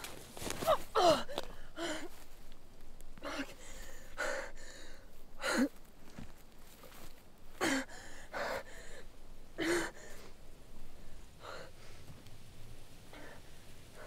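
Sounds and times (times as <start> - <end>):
woman gasping for breath: 0.7 - 2.2.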